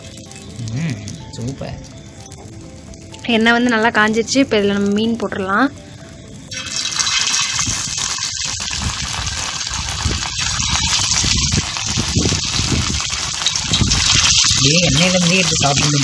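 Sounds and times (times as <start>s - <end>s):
fish sizzling in hot oil: 0.0s - 16.0s.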